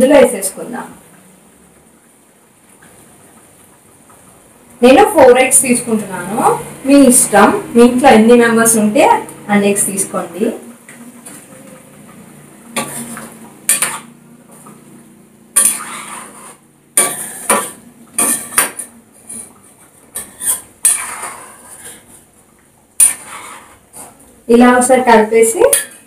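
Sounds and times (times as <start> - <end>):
spoon scraping a cooking pan: 12.7 - 14.9, 15.5 - 22.3, 23.0 - 24.2, 25.6 - 26.0.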